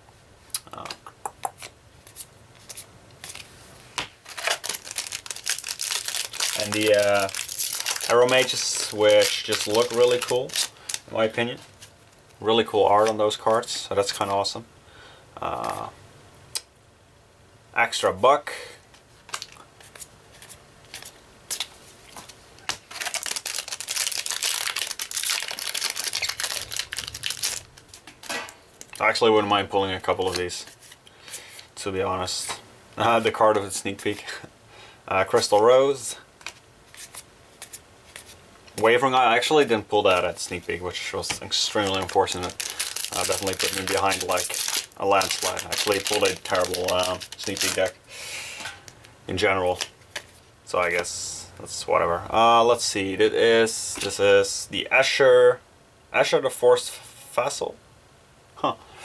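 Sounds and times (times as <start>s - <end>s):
foil wrapper crinkling: 4.1s - 11.9s, 19.3s - 29.2s, 36.4s - 48.0s.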